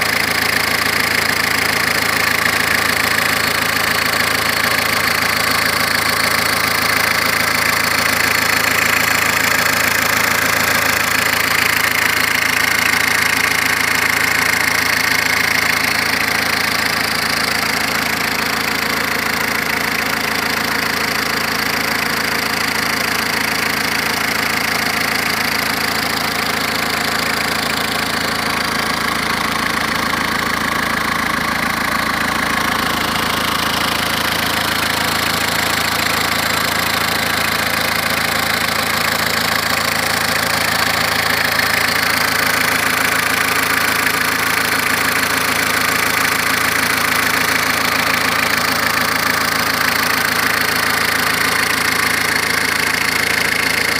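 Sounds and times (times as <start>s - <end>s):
diesel engine idling: 0.0s - 53.9s.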